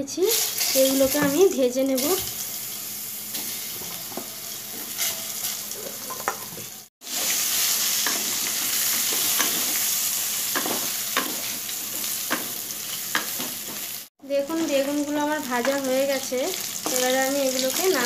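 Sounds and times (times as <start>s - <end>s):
vegetables sizzling in oil: 0.0s - 18.0s
spatula knocking and scraping pan: 3.4s - 7.4s, 8.0s - 9.8s, 10.5s - 13.9s.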